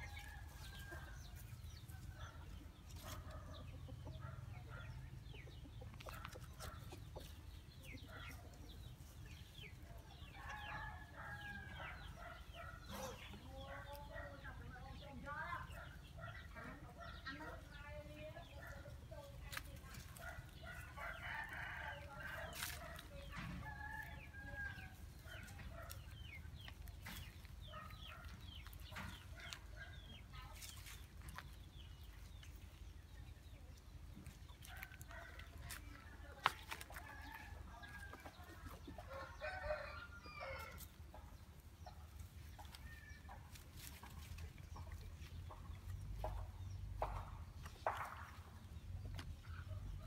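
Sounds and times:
rustles: 22.2s - 23.7s.

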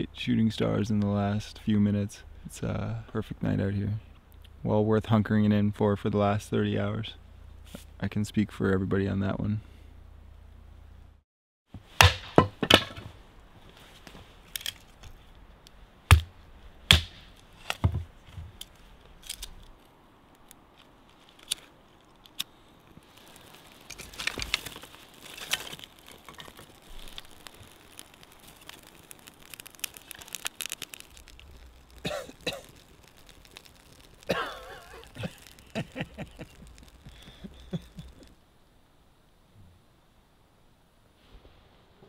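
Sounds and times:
axe chopping firewood: 12.0s - 13.1s, 16.1s - 16.3s, 16.9s - 18.0s
bark crackling and tearing: 20.8s - 38.3s.

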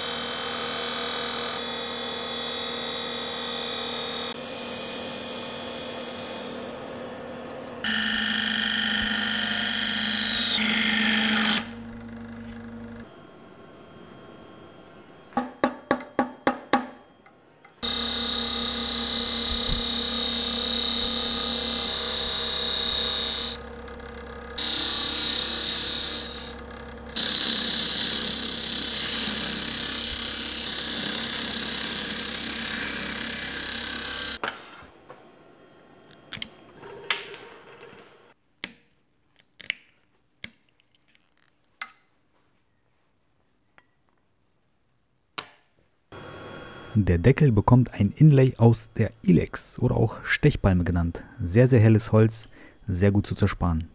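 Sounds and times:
wood lathe cutting hiss and whine: 7.8s - 13.0s, 17.8s - 34.4s, 46.2s - 47.0s.

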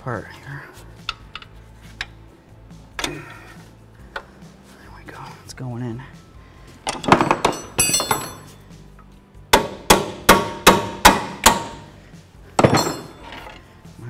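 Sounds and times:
hammer striking steel: 9.5s - 11.9s.

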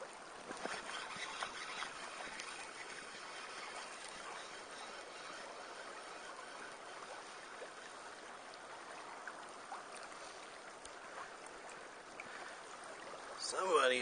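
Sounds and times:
creek running water: 0.0s - 14.0s
faint clicks: 8.8s - 13.2s.

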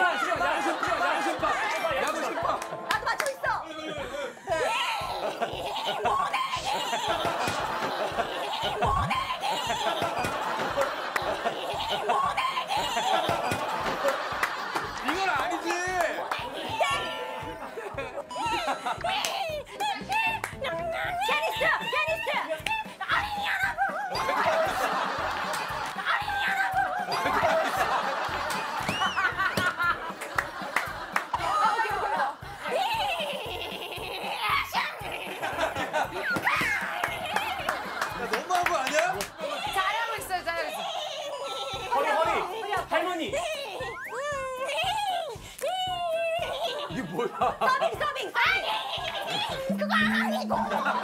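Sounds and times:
group of people laughing: 0.0s - 20.5s, 21.2s - 44.0s, 45.6s - 51.0s
person's playful vocal cries: 49.5s - 51.0s.

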